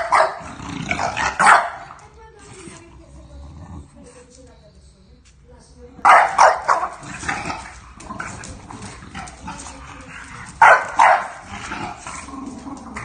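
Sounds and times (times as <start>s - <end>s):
dogs barking: 0.0s - 2.0s, 6.0s - 12.0s
dogs scuffling: 4.2s - 13.0s.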